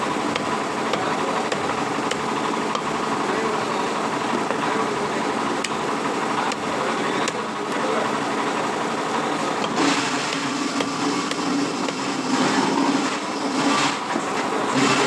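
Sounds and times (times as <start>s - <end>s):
busy background noise: 0.0s - 15.0s
engine running steadily: 0.0s - 15.0s.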